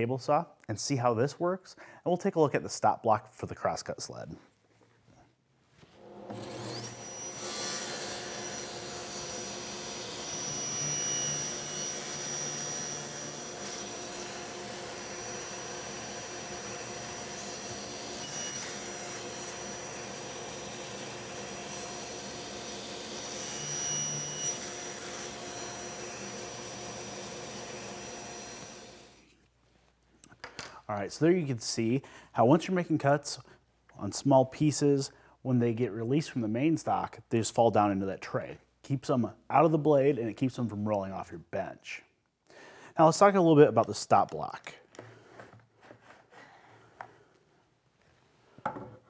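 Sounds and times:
table saw running: 6.0 - 29.2
saw blade cutting wood: 6.1 - 29.2.

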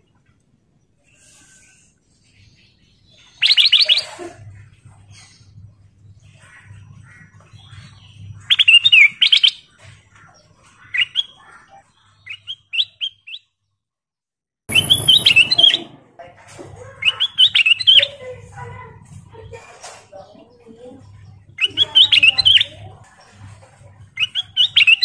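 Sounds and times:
bird warbling whistled notes: 14.7 - 15.9.

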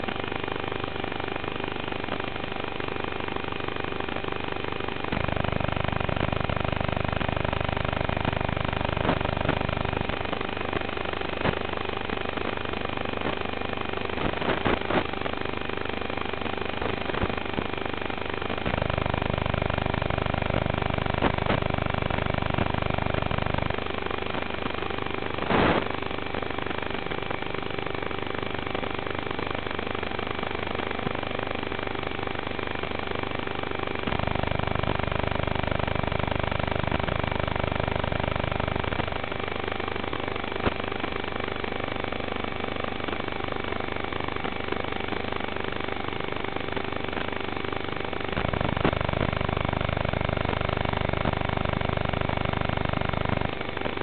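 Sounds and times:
buzz and hiss with tones: 0.0 - 54.0
loud low hum: 4.9 - 10.4.

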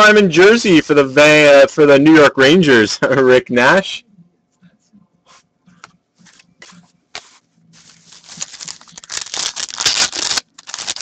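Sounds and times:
trading cards clicking and rustling: 5.8 - 11.0
foil wrapper crinkling and tearing: 7.8 - 11.0.

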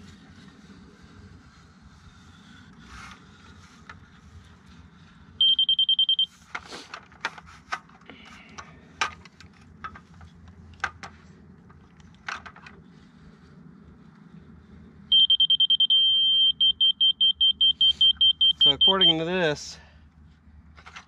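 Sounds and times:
laser receiver beeping rapidly: 15.2 - 19.2.

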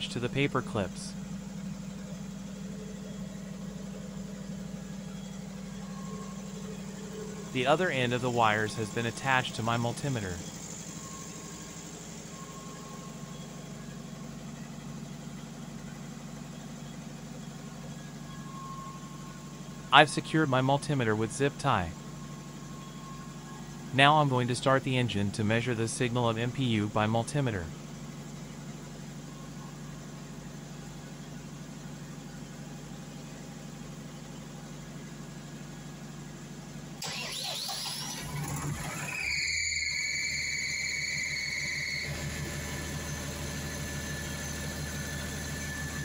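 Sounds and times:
engine humming: 0.0 - 14.8
low mechanical hum: 0.0 - 46.0.

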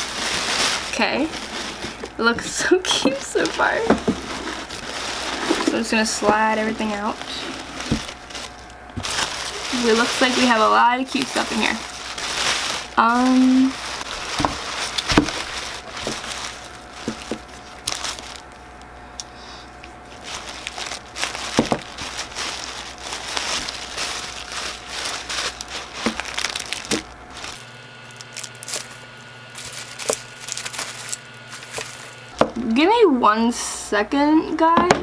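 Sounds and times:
tissue paper crinkling: 0.0 - 18.9, 20.0 - 32.4.

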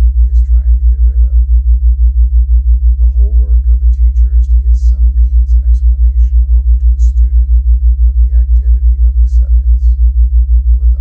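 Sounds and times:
faint voice reading: 0.0 - 1.4, 3.0 - 10.0, 10.8 - 11.0
low pulsing tone: 0.0 - 11.0.

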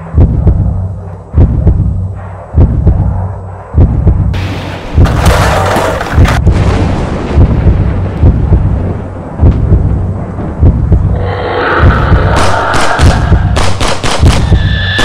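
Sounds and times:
deep booming percussion hits: 0.0 - 15.0
thunder-like rushing swell: 10.2 - 15.0.

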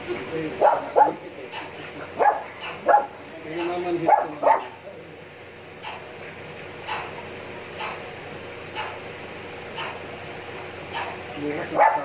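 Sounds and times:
dog barking: 0.6 - 3.2, 4.0 - 4.8, 5.8 - 6.1, 6.8 - 7.2, 7.8 - 8.0, 8.7 - 9.0, 9.7 - 10.0, 10.9 - 12.0.

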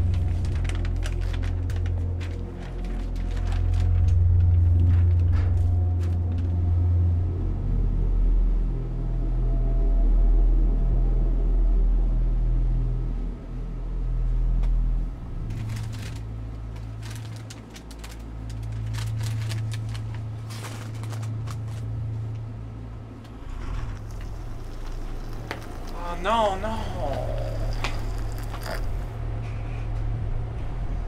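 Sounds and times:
steady low hum: 0.0 - 31.0
plastic chip bag rustling: 15.5 - 21.9, 23.4 - 29.1.

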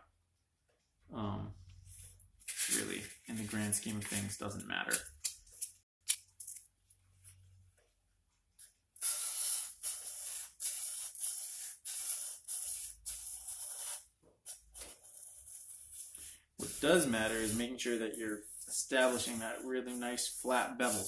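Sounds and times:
sandpaper scraping on steel: 15.2 - 21.0.

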